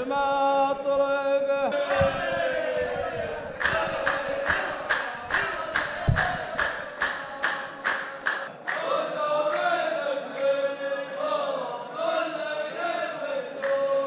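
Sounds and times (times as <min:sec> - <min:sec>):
men chanting in unison: 0:00.0 - 0:14.0
hands clapping together: 0:03.5 - 0:11.5, 0:12.8 - 0:14.0.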